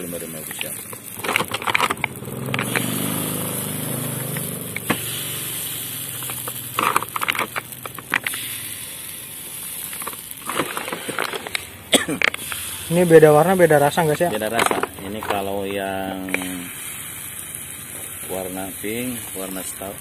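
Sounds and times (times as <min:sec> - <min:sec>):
batter crackling in a hot mould: 0:00.0 - 0:20.0
sharp clicks and taps: 0:00.5 - 0:03.0
vehicle engine running: 0:00.9 - 0:20.0.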